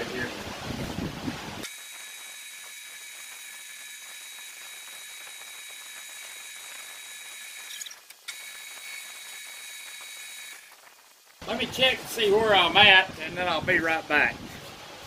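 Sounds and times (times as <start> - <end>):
metal lathe whining: 1.6 - 10.7.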